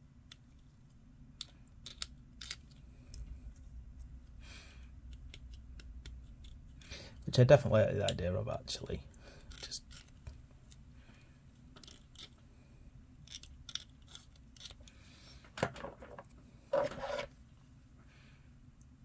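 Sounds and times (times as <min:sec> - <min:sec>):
knife blade scraping plastic: 0:16.7 - 0:17.4.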